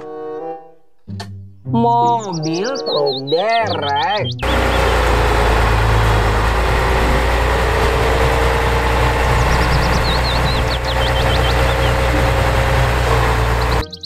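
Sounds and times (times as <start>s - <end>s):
truck engine idling: 4.2s - 14.0s.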